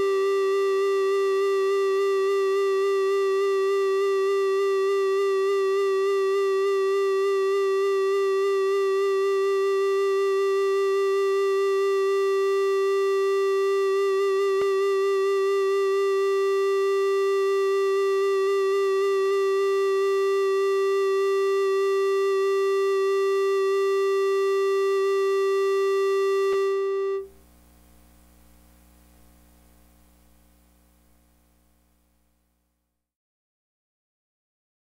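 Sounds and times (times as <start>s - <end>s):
electronic keyboard note held: 24.4s - 27.4s.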